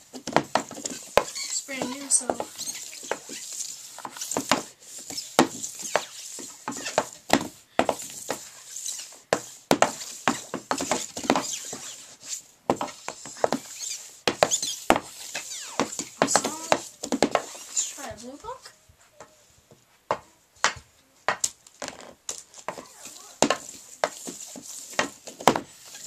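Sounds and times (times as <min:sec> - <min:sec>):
hockey stick and puck clacking: 0:00.2 - 0:12.0, 0:12.7 - 0:17.9, 0:22.3 - 0:26.0.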